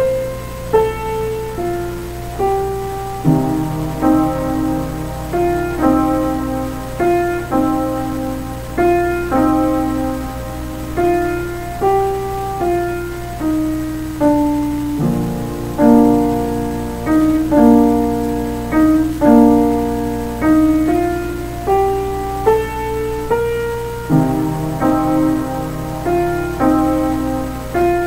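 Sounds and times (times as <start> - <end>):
slow quiet piano piece: 0.0 - 28.0.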